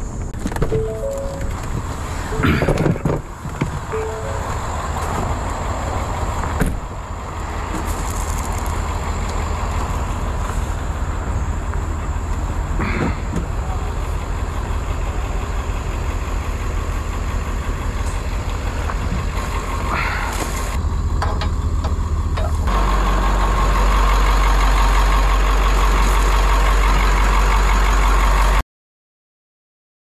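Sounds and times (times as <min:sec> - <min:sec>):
large engine running: 0:00.0 - 0:28.6.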